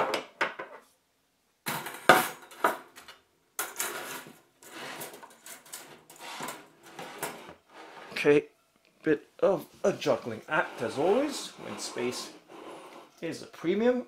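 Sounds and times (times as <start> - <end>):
metal racks clinking on wooden table: 1.7 - 7.5.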